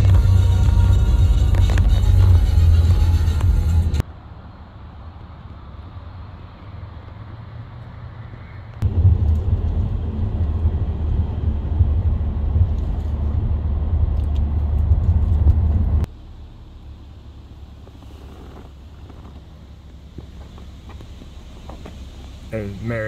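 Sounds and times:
car cabin rumble while driving: 0.0s - 4.0s, 8.8s - 23.0s
quiet outdoor ambience: 4.0s - 23.0s.

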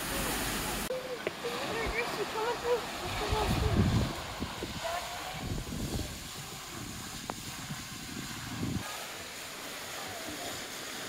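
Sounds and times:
fountain jet splashing: 0.0s - 11.0s
wind on microphone: 1.6s - 9.0s.

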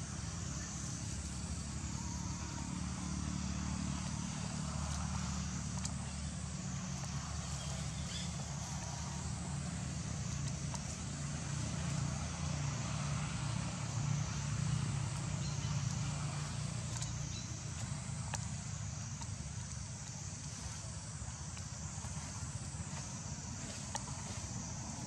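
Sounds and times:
low mechanical hum: 0.0s - 25.0s
faint clicks: 16.9s - 20.5s.

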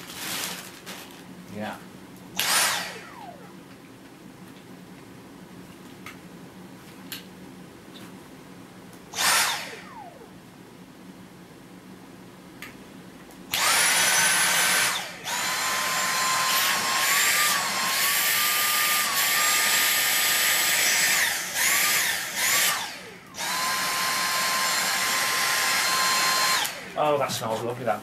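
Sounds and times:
vacuum motor whine: 2.4s - 3.6s, 9.1s - 10.3s, 13.5s - 27.6s.

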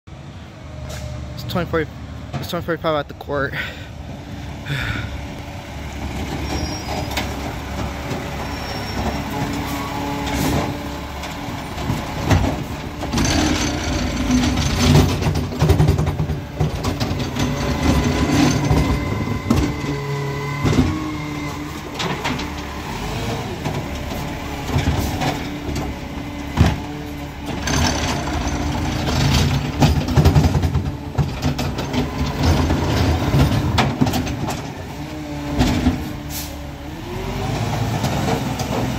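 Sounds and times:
garbage truck engine running: 3.6s - 38.9s
knocks and clanks: 6.1s - 22.8s, 23.6s - 34.9s, 35.5s - 36.3s.

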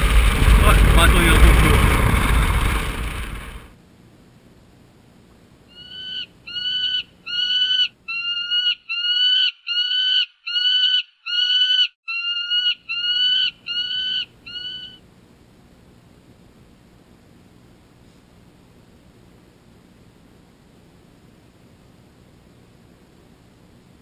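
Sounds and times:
bird calling: 5.7s - 15.0s.

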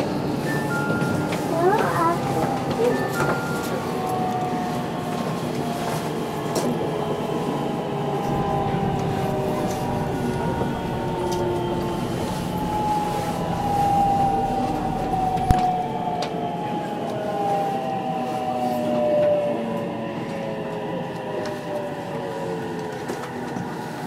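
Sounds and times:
electric train pulling away: 0.0s - 24.0s
whining motor tones: 7.7s - 18.6s.

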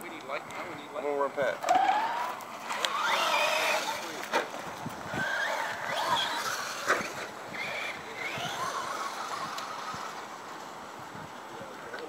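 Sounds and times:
toy truck electric motor whining: 1.6s - 4.4s, 5.0s - 10.5s.

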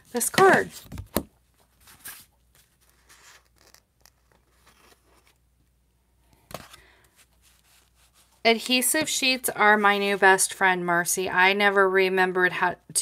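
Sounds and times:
cards rustling and scraping: 0.1s - 5.4s.

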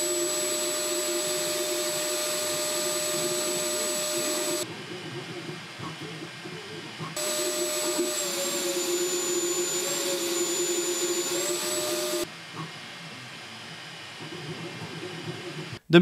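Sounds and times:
three d printer running: 0.0s - 12.3s
cooling fan hiss and whine: 0.0s - 16.0s.

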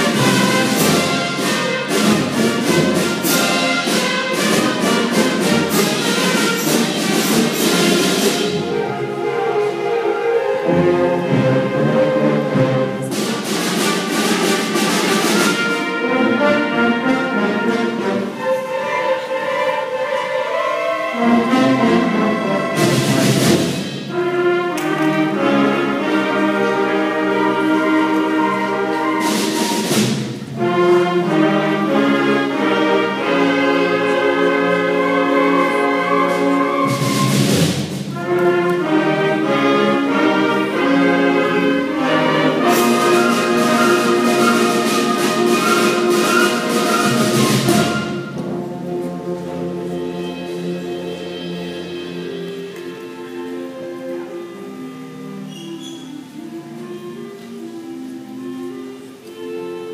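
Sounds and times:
concert band brass chords: 0.0s - 57.6s.

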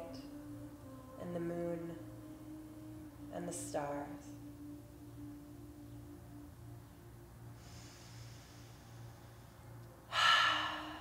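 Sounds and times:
faint low hum: 0.0s - 11.0s
woman breathing: 7.6s - 11.0s.

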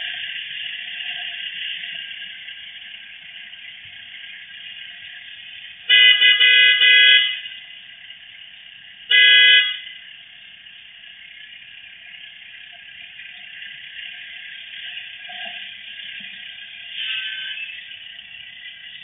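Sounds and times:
car horn honking: 5.9s - 7.5s, 9.1s - 9.9s.

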